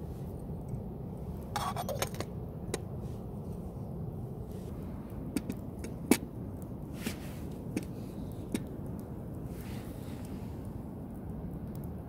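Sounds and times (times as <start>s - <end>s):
steady low rumble: 0.0s - 12.0s
campfire pops and knocks: 5.2s - 6.4s, 7.0s - 9.1s.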